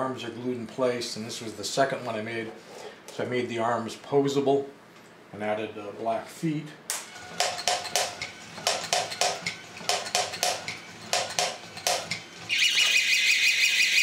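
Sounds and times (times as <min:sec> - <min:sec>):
warbling electronic alarm tone: 0:12.5 - 0:14.0.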